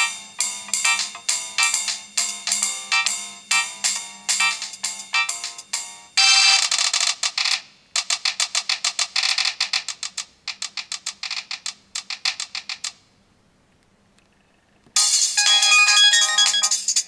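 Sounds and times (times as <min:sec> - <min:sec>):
ringtone melody: 0:00.0 - 0:06.8, 0:15.0 - 0:17.0
rapid pulsing ringtone: 0:00.0 - 0:07.0, 0:15.0 - 0:17.0.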